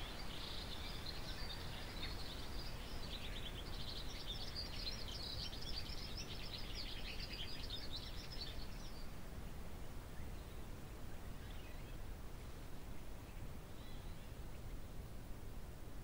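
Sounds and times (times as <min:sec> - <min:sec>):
birds chirping: 0:00.0 - 0:09.1.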